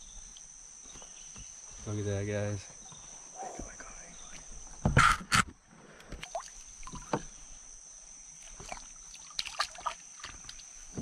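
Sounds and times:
high-pitched insect drone: 0.0 - 5.5
light splashing: 6.1 - 7.1, 8.4 - 10.7.

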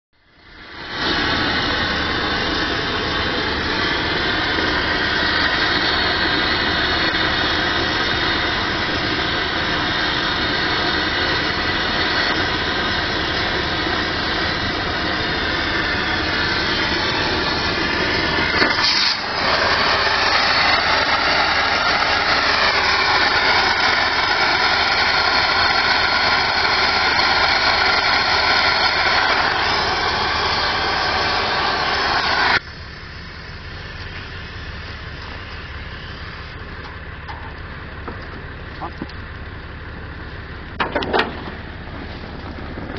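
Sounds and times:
torch blowing: 0.3 - 42.9.

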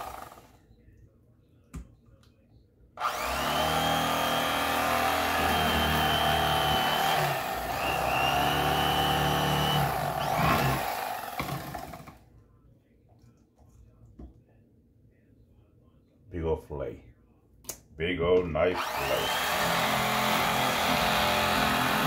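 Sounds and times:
electric knife motor buzzing: 3.0 - 11.9, 18.8 - 22.0.

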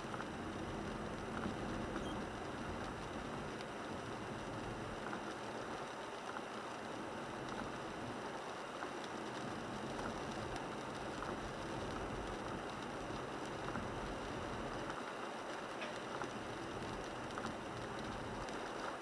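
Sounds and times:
car road noise on wet pavement: 0.0 - 19.0
raindrops ticking on windshield: 0.0 - 19.0.

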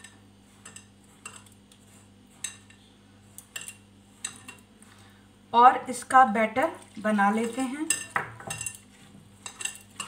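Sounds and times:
clicks and scrapes against bowl: 0.0 - 4.7
hand mixing food in a bowl: 0.0 - 5.1, 5.8 - 10.0.

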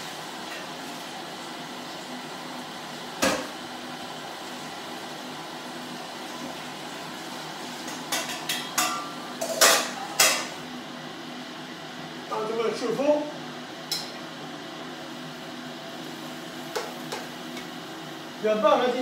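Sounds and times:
stir fry hissing in a wok: 0.0 - 12.3, 13.3 - 19.0
pans and utensils clattering: 7.8 - 10.6.

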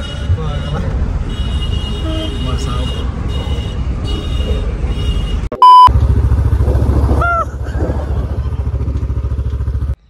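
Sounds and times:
loud test-tone beep: 5.6 - 5.9
motorcycle engine running: 5.9 - 10.0.

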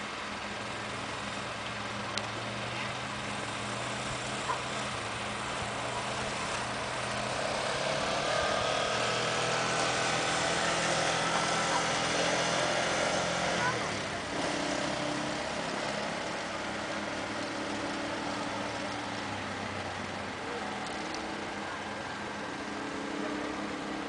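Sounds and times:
faint voices: 20.0 - 24.0.

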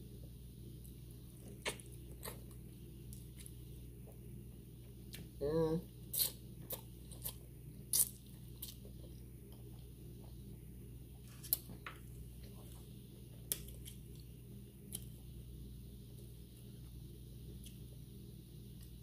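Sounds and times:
person chewing food: 0.8 - 5.3, 6.0 - 10.5, 11.1 - 15.2.

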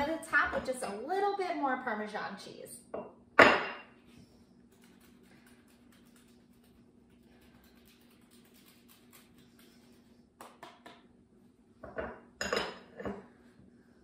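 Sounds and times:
utensils clinking on ceramic bowl: 12.0 - 13.2.

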